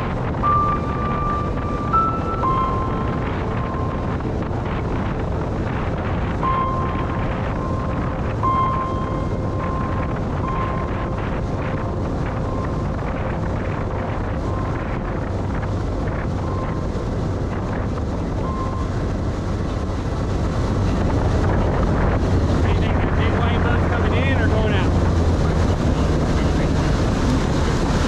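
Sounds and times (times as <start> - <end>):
motorboat engine hum: 0.0 - 28.0
rush of boat wake: 0.0 - 28.0
wind buffeting microphone: 0.0 - 28.0
thin high tone: 0.3 - 4.5, 6.4 - 13.2.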